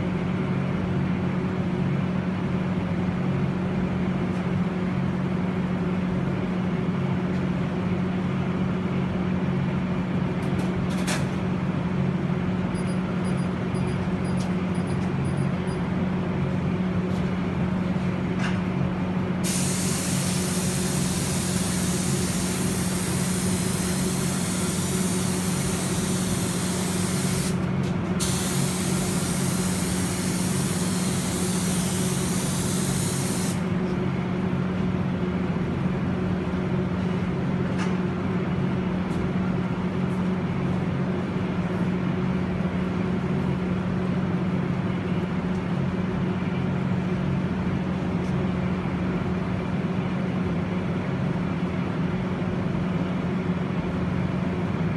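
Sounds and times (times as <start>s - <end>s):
steady low hum: 0.0s - 54.9s
spray gun hissing: 19.4s - 27.6s, 28.2s - 33.6s.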